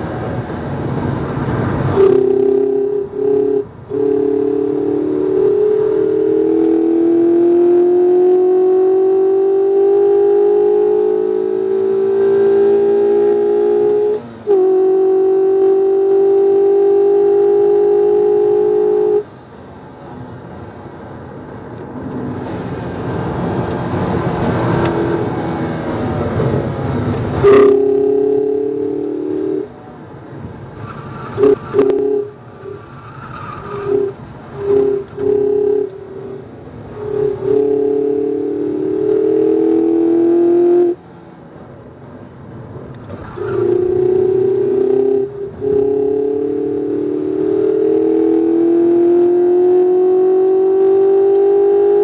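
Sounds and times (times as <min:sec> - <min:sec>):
car engine under power: 0:00.0 - 0:52.0
road and wind noise: 0:00.0 - 0:52.0.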